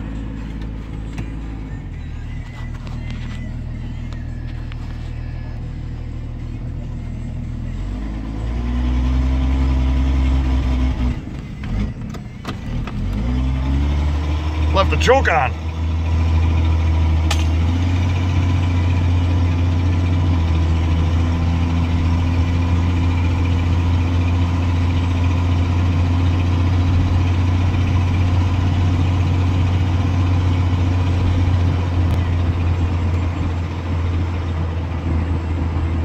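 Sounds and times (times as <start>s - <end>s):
truck engine droning from cab: 0.0s - 36.0s.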